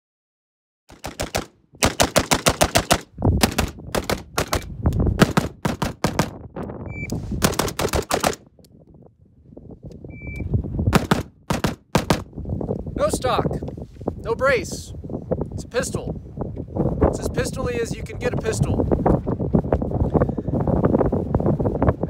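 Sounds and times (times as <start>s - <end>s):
rapid pistol gunshots: 0.9s - 6.4s, 7.4s - 8.4s, 10.9s - 12.3s
shot timer beep: 10.1s - 10.4s.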